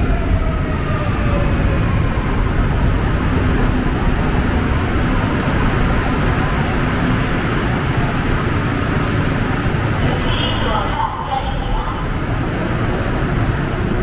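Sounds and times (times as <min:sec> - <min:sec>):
faint high squeal: 0:06.8 - 0:08.2.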